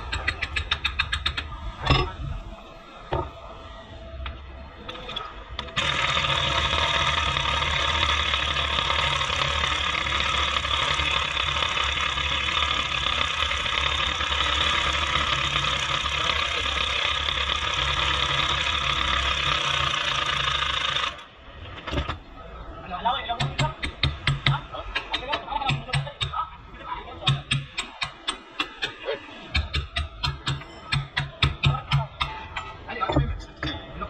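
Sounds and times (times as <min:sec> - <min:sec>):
electric power tool on steel: 0:05.6 - 0:21.3.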